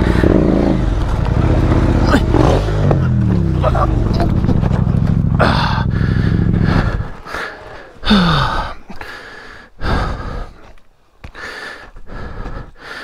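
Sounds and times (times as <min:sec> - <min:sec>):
motorcycle engine running: 0:00.0 - 0:07.6
man grunting: 0:02.0 - 0:04.4, 0:05.4 - 0:09.0
man gasping for breath: 0:05.4 - 0:13.0.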